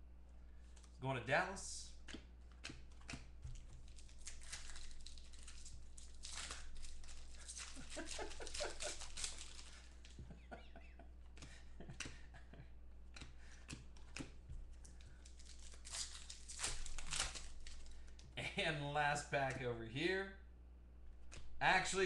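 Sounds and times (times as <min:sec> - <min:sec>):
cards shuffling: 0:00.6 - 0:01.0, 0:01.9 - 0:10.4, 0:13.0 - 0:18.4
foil wrapper crinkling: 0:03.5 - 0:10.3, 0:14.7 - 0:18.3.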